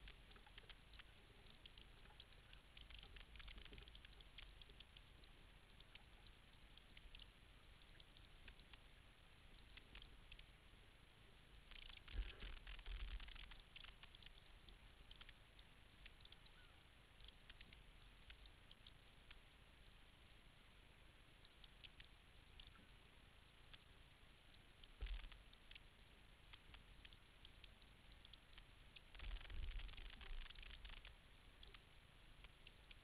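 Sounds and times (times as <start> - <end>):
light crackling: 0.0 - 33.0.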